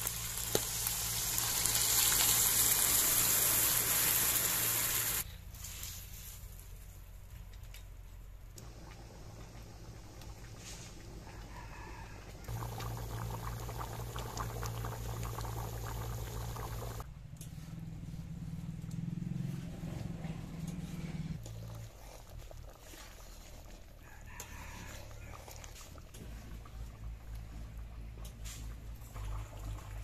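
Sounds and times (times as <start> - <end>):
curry bubbling and popping: 12.3 - 17.0, 21.4 - 30.0.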